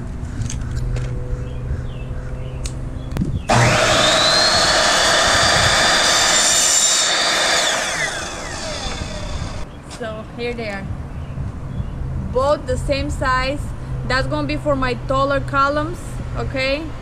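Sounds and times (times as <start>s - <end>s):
saw blade cutting pipe: 3.5s - 9.6s
miter saw motor whining: 3.5s - 9.7s.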